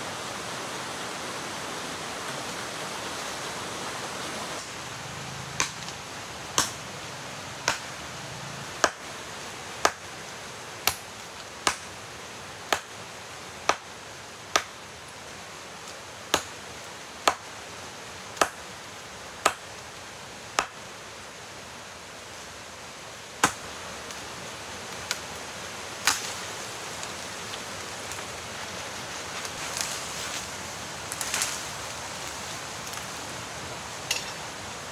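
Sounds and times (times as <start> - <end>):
blade chopping tree trunk: 5.6 - 5.9, 6.6 - 6.8, 7.6 - 7.9, 11.6 - 11.8, 23.4 - 23.6.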